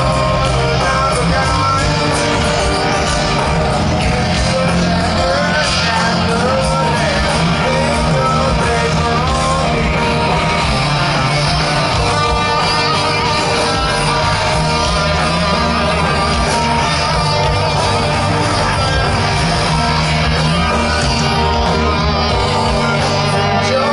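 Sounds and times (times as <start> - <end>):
bass guitar: 0.0 - 23.9
drums: 0.0 - 23.9
electric guitar: 0.0 - 23.9
man singing: 0.0 - 23.9.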